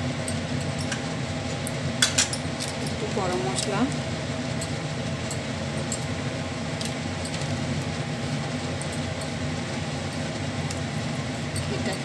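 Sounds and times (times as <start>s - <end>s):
low kitchen hum: 0.0s - 12.0s
metal spoon clinking: 11.4s - 12.0s.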